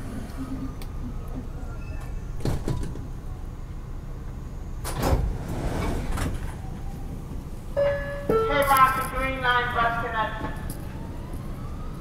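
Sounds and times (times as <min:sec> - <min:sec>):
subway car rattling clatter: 0:00.0 - 0:11.0
subway wheels rumbling on rail: 0:00.0 - 0:12.0.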